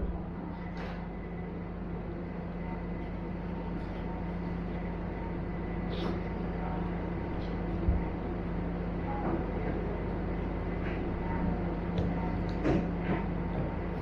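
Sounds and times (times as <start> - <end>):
low mechanical hum: 0.0 - 14.0.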